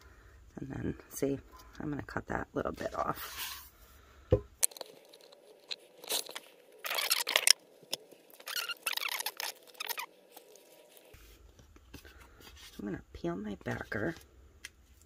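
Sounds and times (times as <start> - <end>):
decal sheet crinkling: 4.6 - 12.8.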